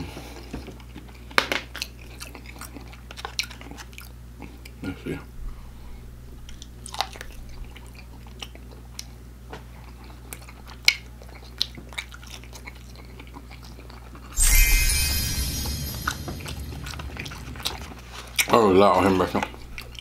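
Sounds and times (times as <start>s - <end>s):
chewing crispy food: 0.4s - 4.9s, 6.5s - 14.4s
loud sound effect: 14.4s - 19.1s.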